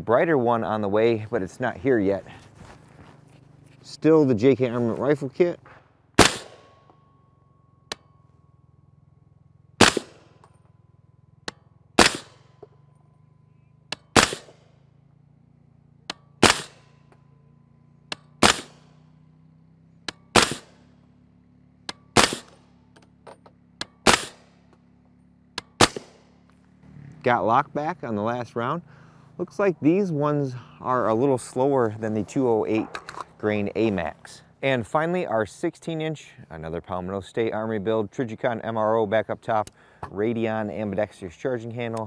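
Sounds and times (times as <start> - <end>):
suppressed pistol shots: 5.7 - 6.9, 9.8 - 10.4, 12.0 - 12.6, 13.9 - 14.8, 16.4 - 17.0, 18.1 - 19.0, 20.2 - 20.8, 21.9 - 22.7, 23.8 - 24.6, 25.6 - 26.4.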